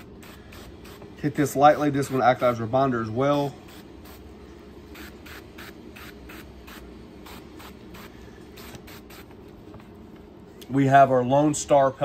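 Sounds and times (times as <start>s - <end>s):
aerosol spray hissing bursts: 0.0s - 2.7s, 3.3s - 4.3s, 4.9s - 9.3s.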